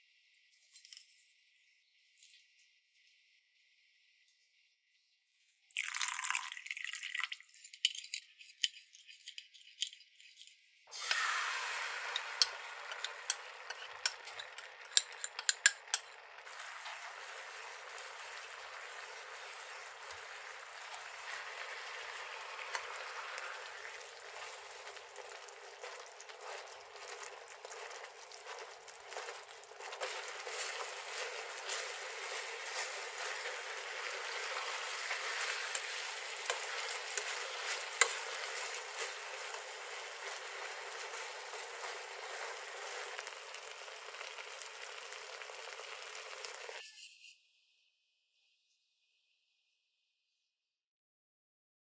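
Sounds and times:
water pouring into glass bowl: 5.7s - 8.2s, 10.9s - 46.8s
sauce sizzling in frying pan: 10.9s - 46.8s
wooden spatula stirring: 12.1s - 46.8s.

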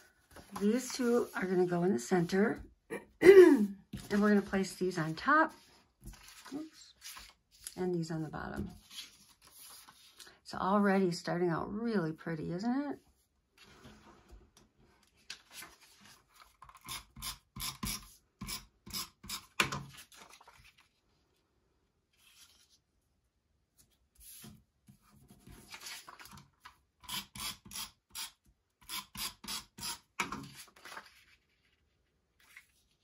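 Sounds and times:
paper rustling and scraping: 3.9s - 7.8s, 8.6s - 10.2s, 15.1s - 16.9s, 19.9s - 21.1s, 22.1s - 22.9s, 23.8s - 26.8s, 30.4s - 33.0s.

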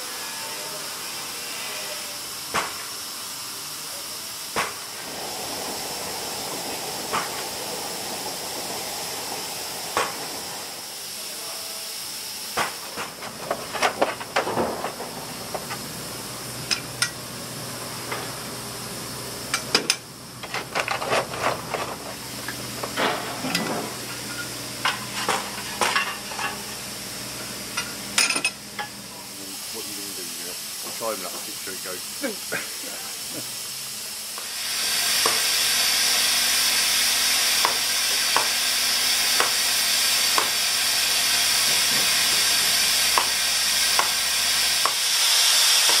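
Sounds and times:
steam hissing from boiler: 0.0s - 46.0s
coal shovel clanks and scrapes: 12.8s - 15.8s, 19.5s - 26.8s.

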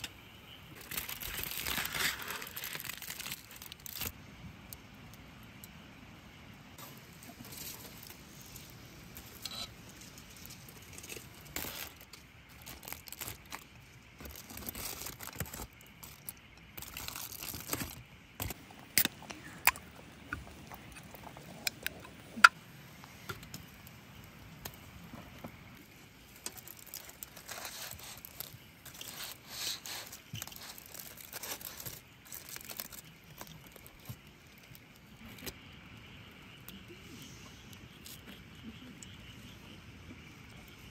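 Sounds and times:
aluminium foil crinkling: 0.7s - 4.2s, 6.8s - 19.8s, 25.8s - 35.8s.

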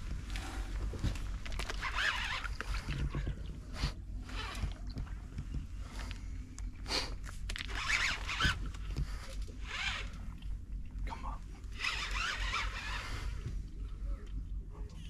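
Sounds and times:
fishing reel whirring: 1.6s - 3.0s, 7.6s - 8.8s, 9.6s - 10.4s, 11.7s - 13.5s.

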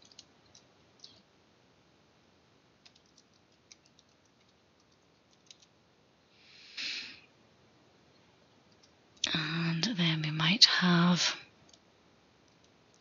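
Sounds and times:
soft breathy noise: 6.2s - 7.4s.

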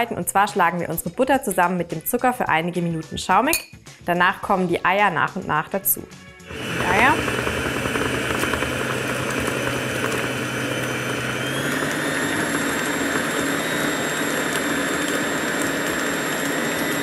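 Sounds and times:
stand mixer motor hum: 6.5s - 17.0s.

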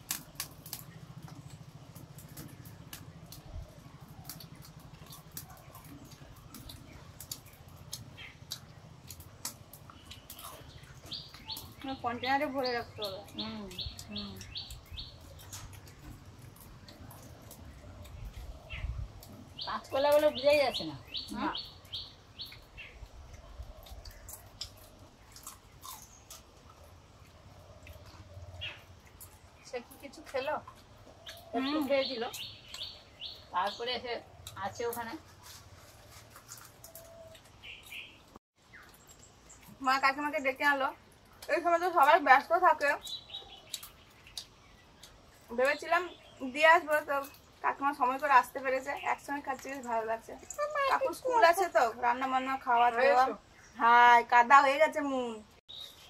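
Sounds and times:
chips snapping and crunching: 0.0s - 1.4s, 23.1s - 28.1s
crunching chips: 23.8s - 28.0s, 35.2s - 39.7s
bird chirps: 30.4s - 34.6s, 55.7s - 56.0s.

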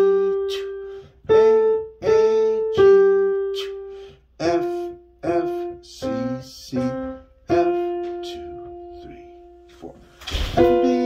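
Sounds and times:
piano melody single notes: 0.0s - 11.0s.

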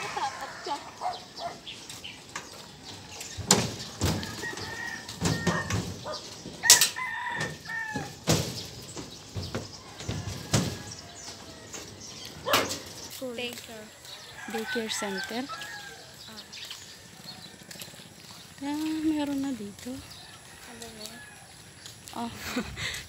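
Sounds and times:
rooster crowing: 0.0s - 1.4s, 4.2s - 5.8s, 6.6s - 8.2s, 14.0s - 16.3s
footsteps on steel footbridge: 0.4s - 22.7s.

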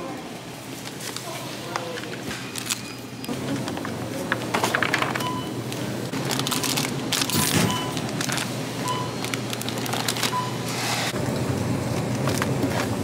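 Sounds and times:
plastic packaging crinkling: 6.1s - 10.5s.

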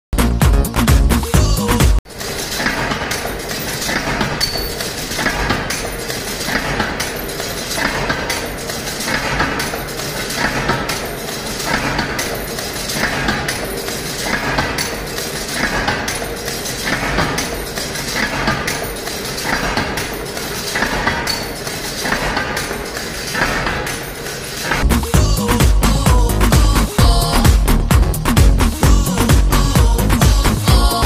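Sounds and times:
electronic music: 0.2s - 2.0s, 24.7s - 31.0s
machinery rattling and knocking: 0.2s - 31.0s
metallic stamping clatter: 2.0s - 31.0s.

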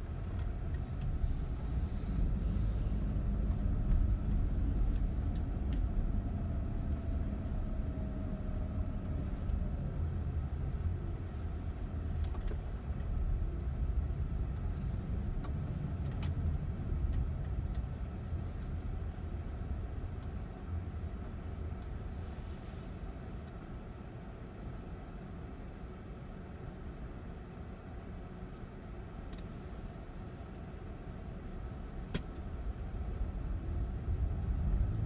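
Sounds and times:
car engine and tyres rumbling: 0.0s - 35.0s.

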